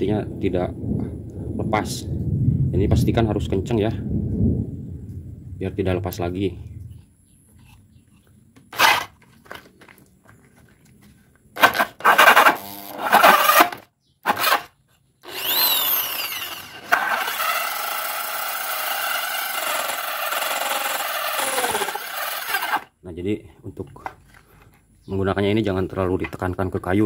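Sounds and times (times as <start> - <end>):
drill with hole saw cutting wood: 8.7 - 9.2, 11.6 - 22.9.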